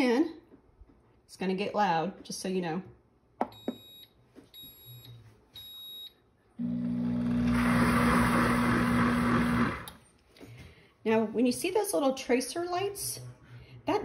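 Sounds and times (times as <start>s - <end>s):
blender beeping: 4.6s - 10.0s
blender motor humming: 6.6s - 10.0s.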